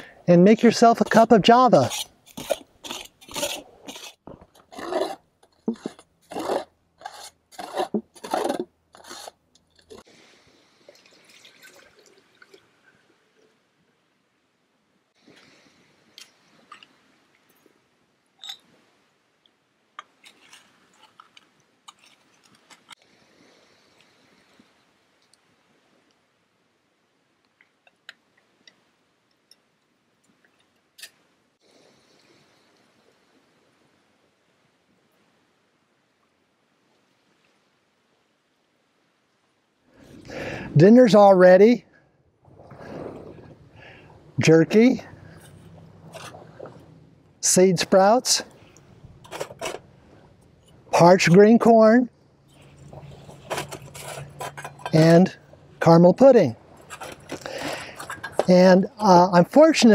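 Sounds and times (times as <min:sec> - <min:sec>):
metal spatula scraping skillet: 0:00.9 - 0:10.1, 0:49.2 - 0:49.8, 0:52.5 - 0:55.4, 0:56.7 - 0:58.5
water trickling into pot: 0:10.9 - 0:12.8.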